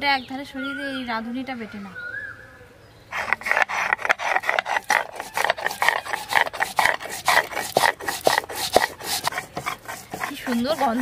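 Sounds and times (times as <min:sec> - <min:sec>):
stone grinding on stone: 0:03.1 - 0:11.0.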